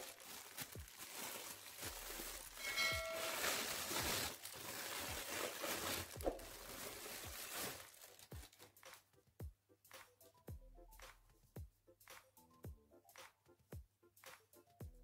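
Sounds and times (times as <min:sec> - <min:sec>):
plastic wrap crinkling: 0:00.0 - 0:08.8
brief chime-like tone: 0:02.6 - 0:03.5.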